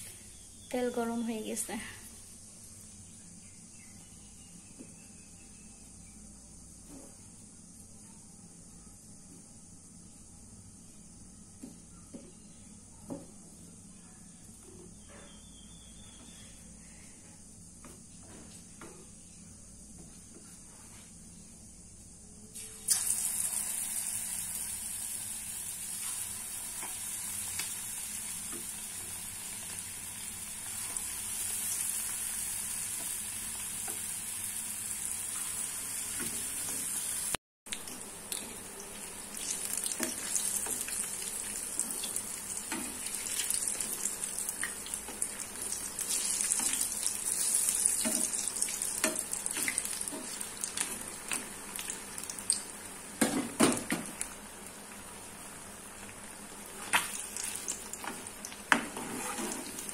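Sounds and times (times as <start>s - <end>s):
food deep-frying in hot oil: 22.6s - 59.9s
oil crackling and popping: 37.7s - 52.7s, 56.0s - 58.8s.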